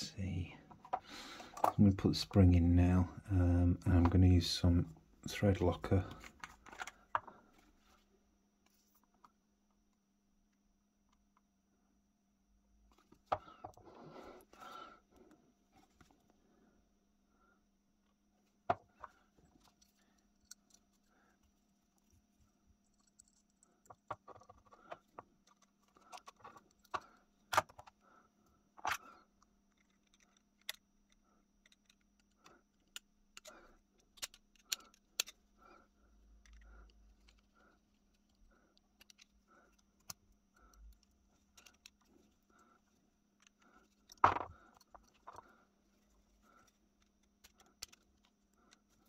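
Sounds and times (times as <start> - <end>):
metal parts clicking and tapping: 29.7 - 35.4, 36.4 - 42.3, 46.6 - 49.0.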